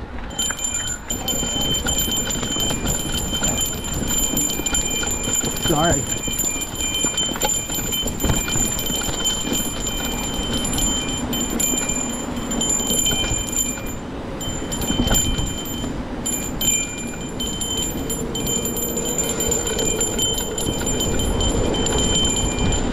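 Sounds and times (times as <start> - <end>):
wind on microphone: 0.0 - 22.9
bike clicks and rattles: 0.2 - 22.9
high ringing buzz: 0.2 - 22.9
bike tyres rumbling on dirt: 0.3 - 22.9.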